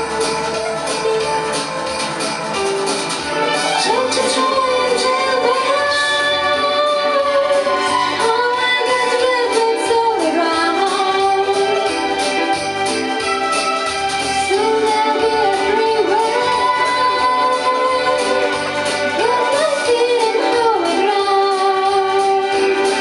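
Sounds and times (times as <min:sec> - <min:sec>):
amplified backing track with beat: 0:00.0 - 0:23.0
woman singing into a microphone: 0:03.8 - 0:12.1, 0:14.4 - 0:23.0.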